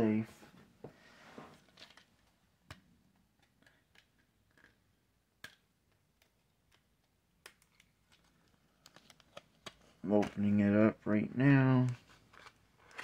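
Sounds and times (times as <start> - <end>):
small objects tapping and clicking: 1.8 - 9.8.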